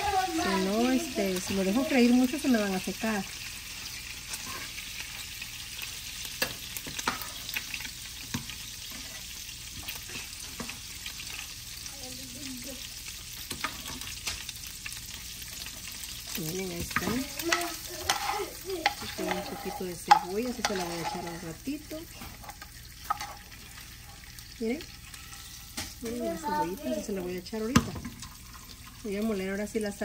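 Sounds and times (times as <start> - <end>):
fat sizzling in frying pan: 0.0 - 30.0.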